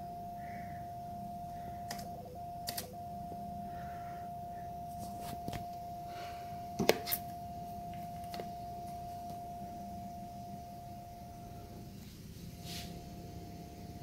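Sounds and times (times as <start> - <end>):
steady telex signal tone: 0.0 - 14.0
sharp clicks: 1.9 - 3.0.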